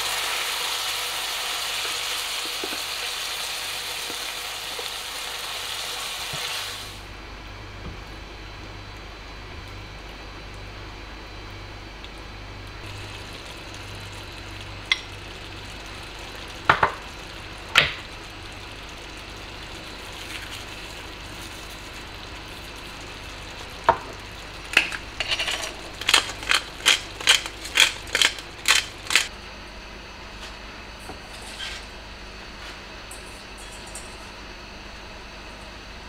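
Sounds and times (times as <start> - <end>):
kitchen utensils clicking: 25.2 - 29.3.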